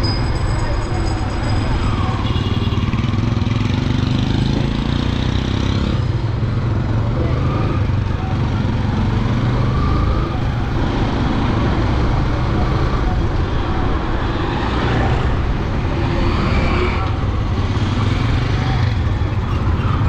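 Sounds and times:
motorcycle engine and wind rumble: 0.0s - 20.0s
traffic: 0.0s - 20.0s.

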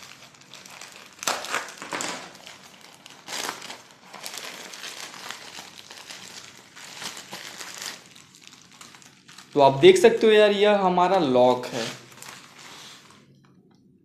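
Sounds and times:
plastic mailer bag crinkling: 0.0s - 13.3s.

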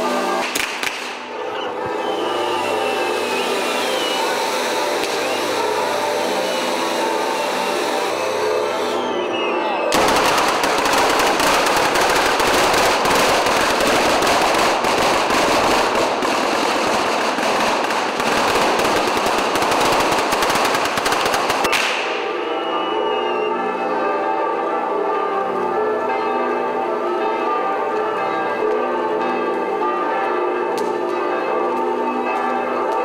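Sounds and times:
firecrackers crackling: 0.0s - 22.4s
church bells ringing: 0.0s - 33.0s.

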